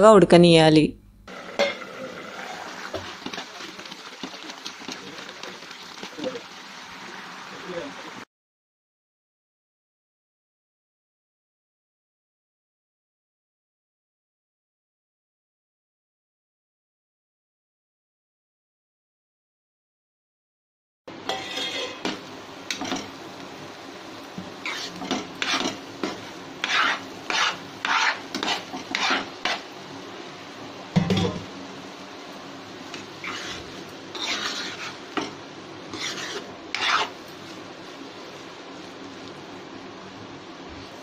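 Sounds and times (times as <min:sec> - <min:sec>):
metal spoon scraping a pan: 0:01.3 - 0:03.6, 0:21.2 - 0:23.2, 0:24.6 - 0:29.7, 0:32.9 - 0:37.3
spoon knocking on pan: 0:30.9 - 0:31.5.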